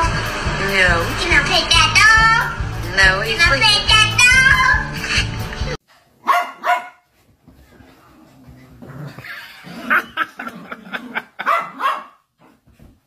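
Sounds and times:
small dog yipping and barking: 6.2 - 7.0, 11.5 - 12.2.

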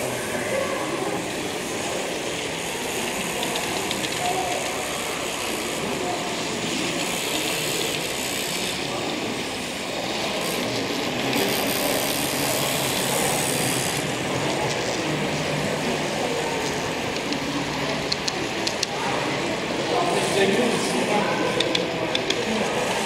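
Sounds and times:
large room background din: 0.0 - 23.0.

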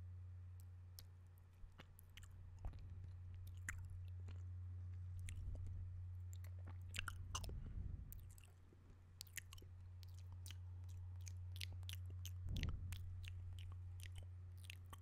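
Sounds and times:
wet mouth clicks: 3.4 - 3.9, 6.3 - 8.6, 9.2 - 15.0.

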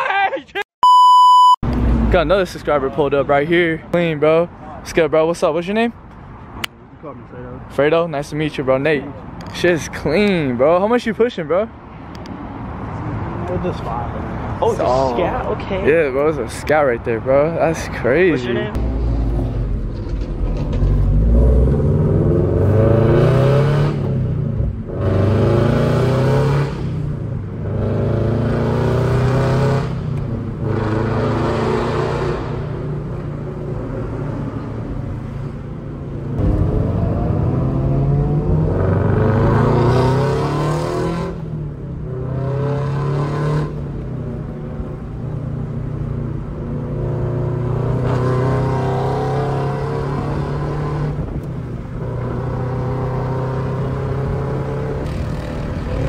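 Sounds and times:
car engine accelerating: 36.3 - 45.1.

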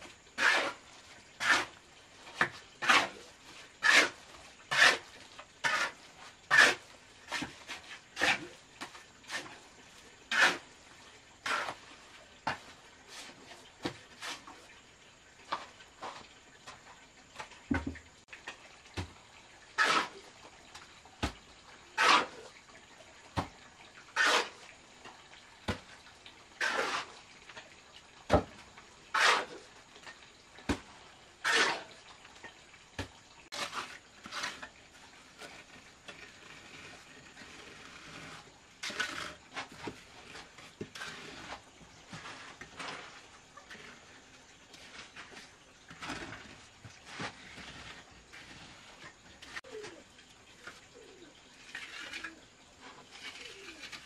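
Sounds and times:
trowel scraping and slapping mortar: 0.3 - 14.7, 19.8 - 22.5, 23.3 - 24.6, 25.6 - 26.0, 26.6 - 27.6, 28.3 - 32.0, 33.0 - 50.0, 50.6 - 54.0
mortar spread scraping: 0.4 - 10.8, 11.4 - 14.7, 19.8 - 20.3, 21.2 - 22.5, 24.1 - 24.6, 26.6 - 27.2, 29.1 - 32.0, 33.0 - 50.0, 50.6 - 54.0.

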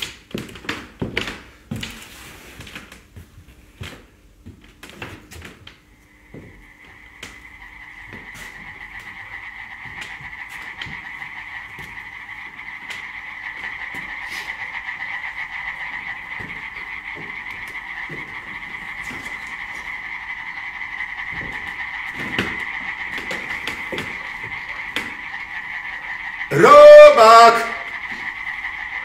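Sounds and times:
frogs croaking: 5.8 - 29.0
man shouting: 26.5 - 27.9.

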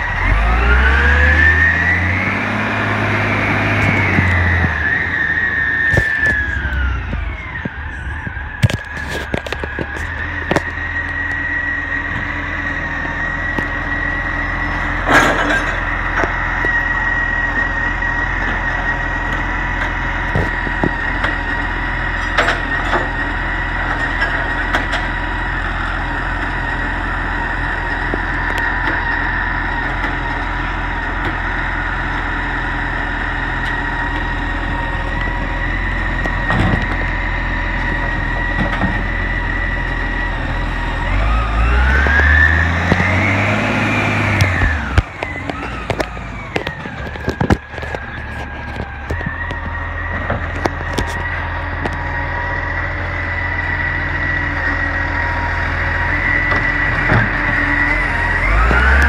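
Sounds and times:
diesel engine revving: 0.0 - 59.0
hydraulic whine: 0.0 - 59.0.

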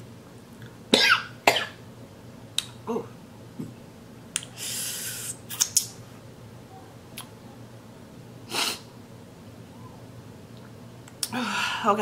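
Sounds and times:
wet lip clicks and finger-sucking: 5.1 - 6.0.

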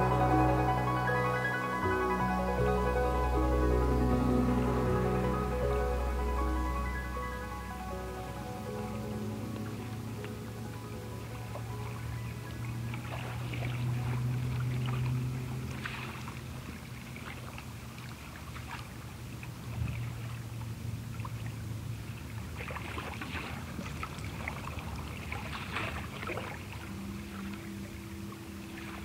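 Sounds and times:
low hum: 0.0 - 18.3
water lapping and sloshing: 8.7 - 29.0.

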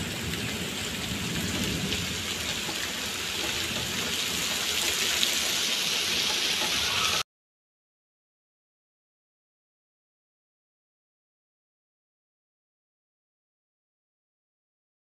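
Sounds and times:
thunder rumble: 0.0 - 5.7
heavy rain on paving: 0.0 - 7.2.

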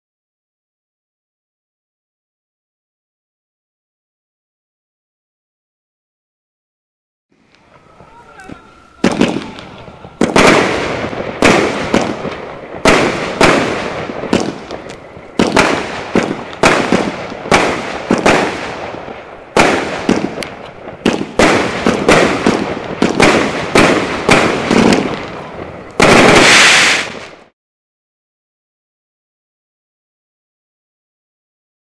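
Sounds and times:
firework shells bursting: 7.4 - 27.5
firework shots launching: 7.4 - 27.5.

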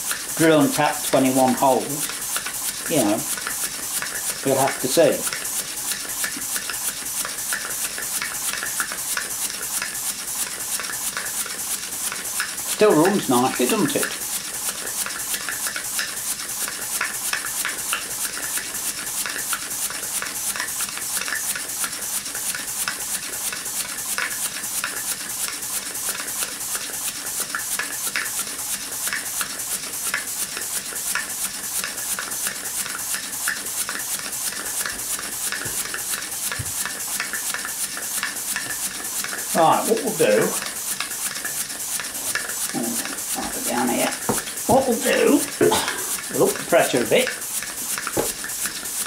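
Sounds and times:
model steam engine puffing: 44.4 - 49.0.

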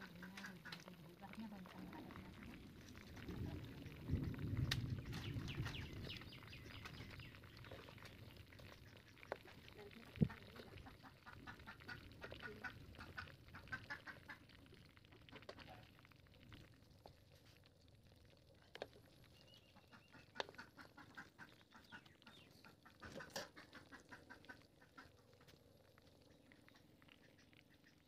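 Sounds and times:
faint bird calls: 19.3 - 25.5.

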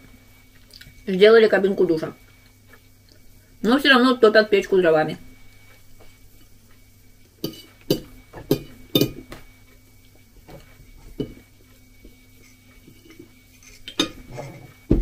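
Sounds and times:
fork clinking on ceramic plate: 7.4 - 9.2.

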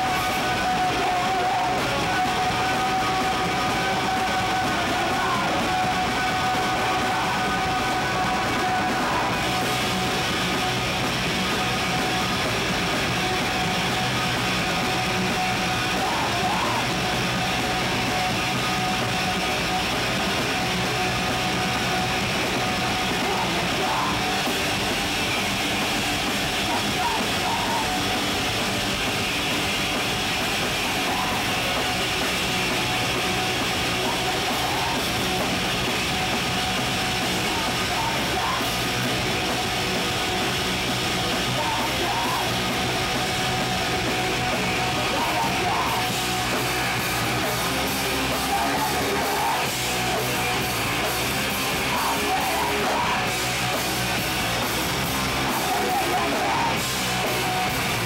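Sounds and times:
singer yelling into microphone: 0.0 - 9.7, 15.5 - 17.6, 22.9 - 24.5, 26.5 - 28.3, 37.2 - 38.8, 41.4 - 42.8, 44.4 - 47.0, 48.2 - 50.6, 51.4 - 53.7, 55.3 - 57.2
band playing distorted rock: 0.0 - 58.0.

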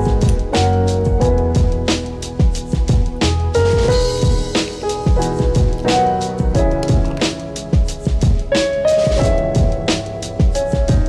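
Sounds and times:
background music with drum beat: 0.0 - 11.0.

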